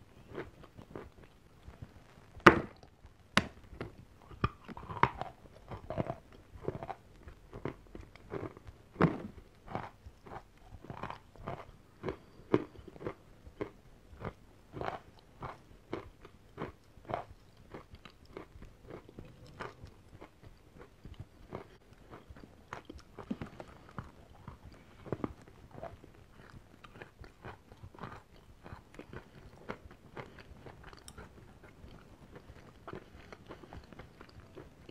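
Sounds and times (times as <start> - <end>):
person crunching and chewing: 0.2 - 2.9, 3.7 - 34.9.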